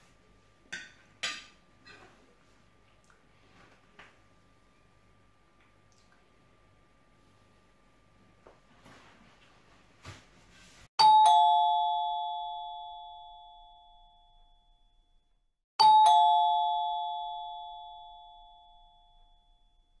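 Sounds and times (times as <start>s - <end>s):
two-tone doorbell chime: 11.0s - 15.0s, 15.8s - 20.0s.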